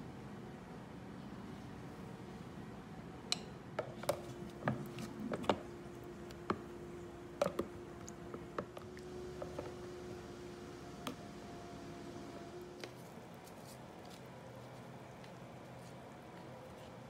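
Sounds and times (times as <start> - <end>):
spoon tapping plastic container: 7.4 - 7.7.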